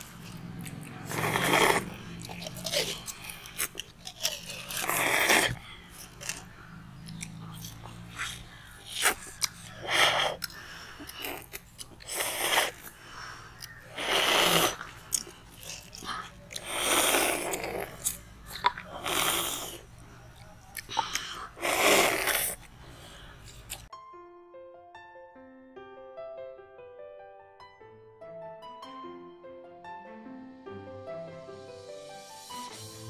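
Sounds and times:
people slurping ice lollies: 0.8 - 6.5, 7.1 - 20.0, 20.8 - 23.0.

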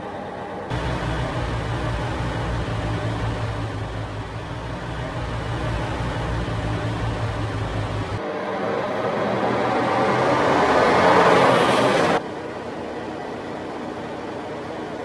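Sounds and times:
truck engine hum: 0.7 - 8.2
road and wind noise: 0.7 - 12.3.

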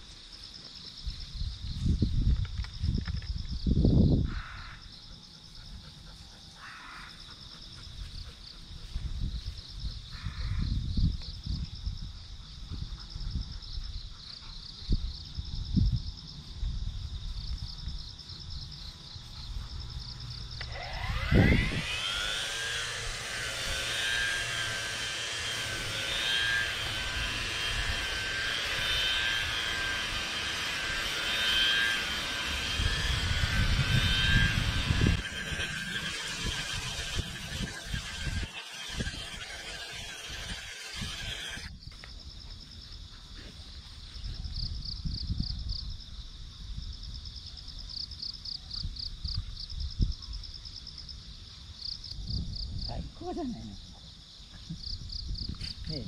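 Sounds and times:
insects chirping: 0.0 - 56.0
brush cutter motor whining: 20.4 - 41.8.

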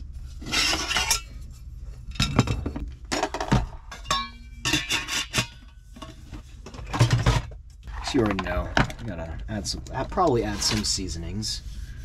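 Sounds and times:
metal cookware clinking: 3.2 - 6.2.

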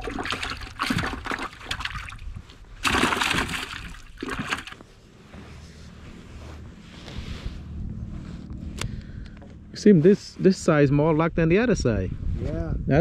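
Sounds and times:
fish thrashing in bucket of water: 0.0 - 4.8.

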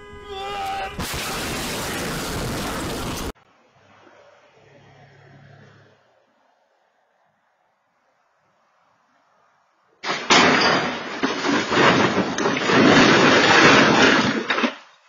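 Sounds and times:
car crashing through trees: 1.0 - 3.4, 10.0 - 14.9
crunching and scraping: 10.1 - 15.0.

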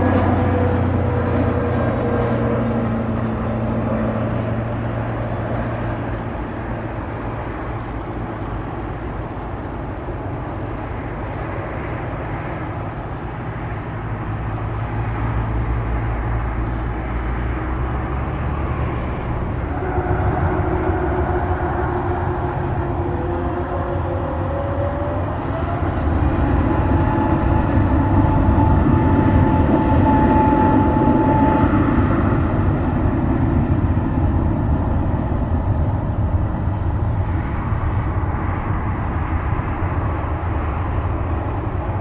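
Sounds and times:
jet engine rumble: 0.0 - 42.0
jet engine whine: 0.0 - 42.0.

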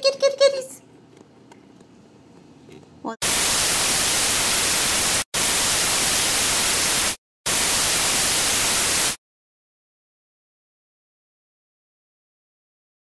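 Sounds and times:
television static hiss: 2.6 - 9.2.

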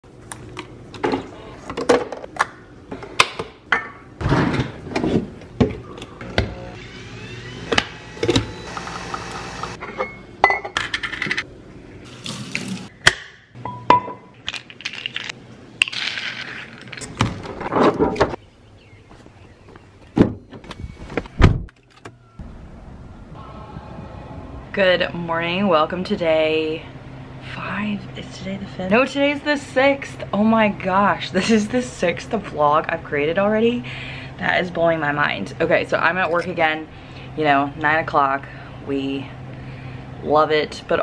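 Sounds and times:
coffee machine hissing: 6.6 - 9.8.

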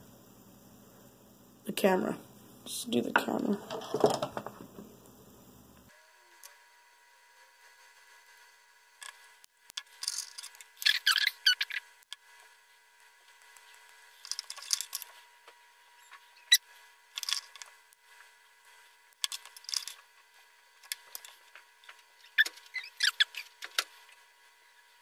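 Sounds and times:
faint thin whine: 0.0 - 25.0
tools clicking and scratching on mat: 9.0 - 12.3, 13.5 - 15.2, 17.1 - 17.8, 19.1 - 20.2.

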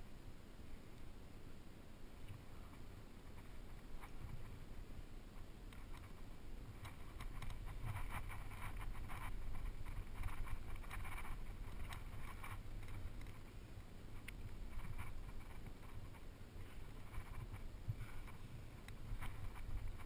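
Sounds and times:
gear scraping against rock: 6.8 - 13.4
wind on microphone: 14.1 - 20.0.

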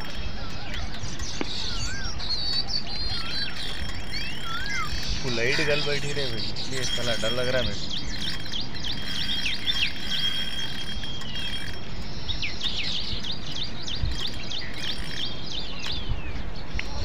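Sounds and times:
thin high tone: 0.0 - 12.3
birds chirping: 0.0 - 17.0
outdoor noise: 0.0 - 17.0.

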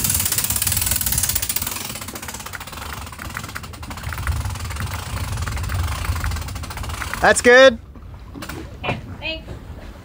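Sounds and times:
light rapid clicking: 0.0 - 7.6
boat engine idling: 0.0 - 10.0.

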